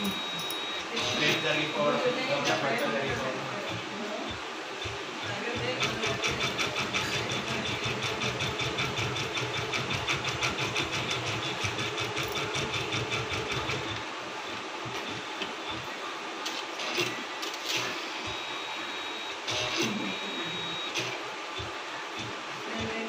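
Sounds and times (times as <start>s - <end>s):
embroidery machine stitching: 4.9s - 14.0s.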